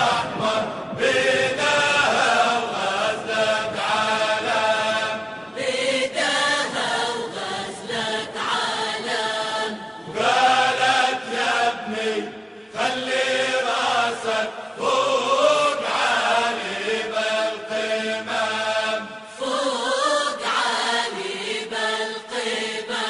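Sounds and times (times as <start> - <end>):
person singing a chant-like song: 0.0 - 23.0.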